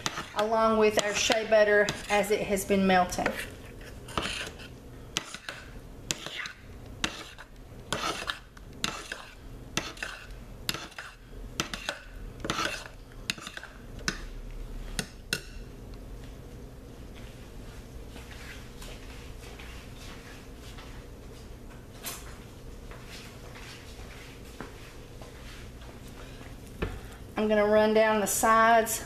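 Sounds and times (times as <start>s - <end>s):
metal spoon scraping a pot: 0.0s - 2.5s, 3.1s - 14.2s.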